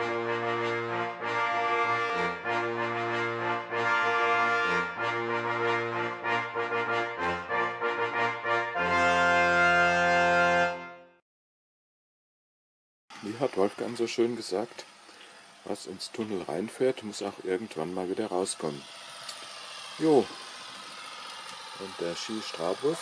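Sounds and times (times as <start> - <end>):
brass-led intro music: 0.0 - 11.2.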